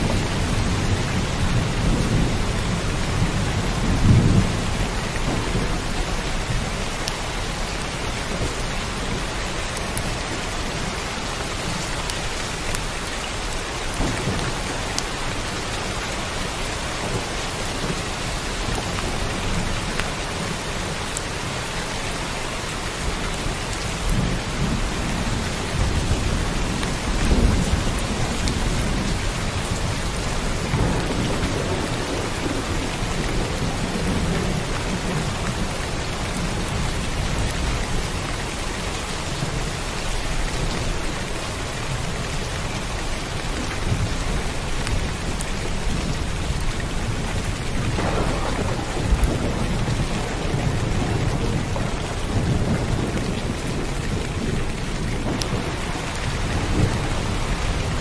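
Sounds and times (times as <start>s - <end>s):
heavy rain: 0.0s - 58.0s
thunder rumbling: 23.9s - 38.3s, 43.8s - 58.0s.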